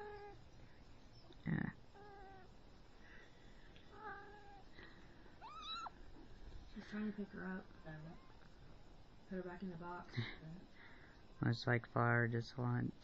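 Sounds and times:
kitten mewing: 5.4 - 6.0.

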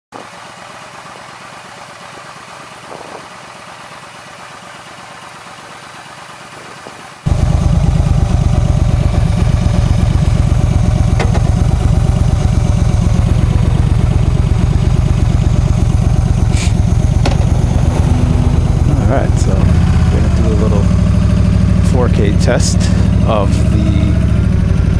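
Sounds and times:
motorcycle engine idling: 0.2 - 24.9.

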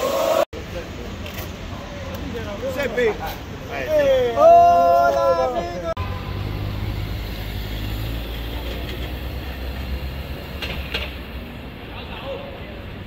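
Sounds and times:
vehicle engine rumbling: 5.8 - 12.1.

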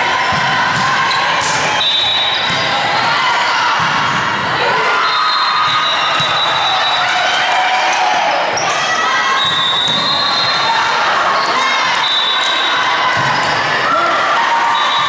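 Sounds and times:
sneakers squeaking on floor: 0.2 - 2.8, 11.3 - 13.6.

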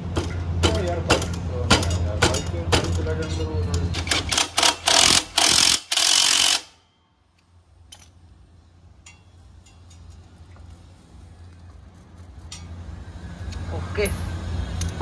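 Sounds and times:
impact wrench bursts: 4.0 - 6.8.

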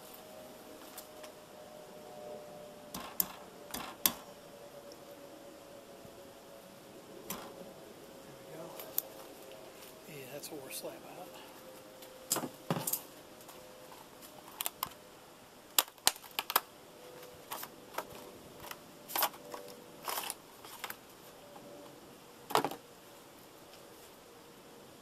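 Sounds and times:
packaging rustling scrapes: 19.1 - 21.0.

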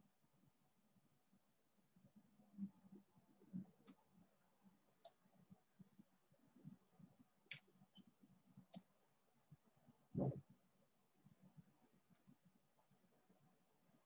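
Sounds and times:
computer mouse clicks: 7.5 - 7.7.

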